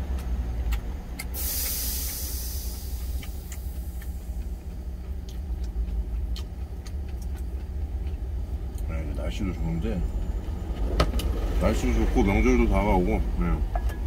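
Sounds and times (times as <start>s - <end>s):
truck engine idling: 0.0s - 14.0s
high hiss: 1.4s - 4.0s.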